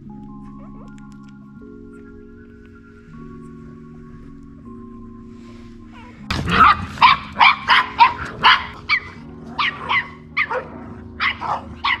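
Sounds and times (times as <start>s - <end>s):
background music: 0.0s - 12.0s
dog barking: 6.0s - 12.0s.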